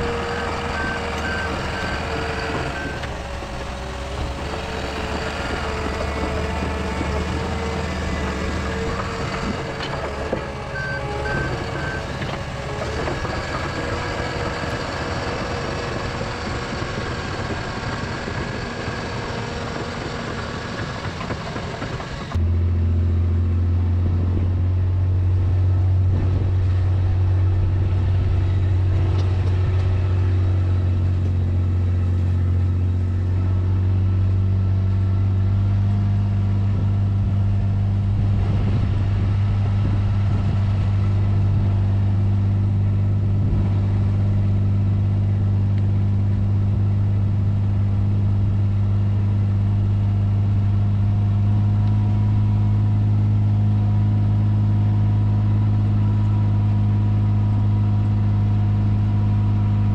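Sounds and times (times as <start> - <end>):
dozer engine running: 0.0 - 59.9
loud engine close to microphone: 0.0 - 59.9
short reversing beeps: 10.7 - 12.1.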